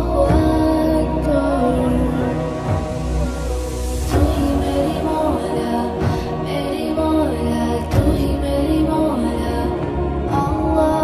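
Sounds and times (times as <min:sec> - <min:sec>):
low steady drone: 0:00.0 - 0:11.0
woman singing slow melody: 0:00.0 - 0:11.0.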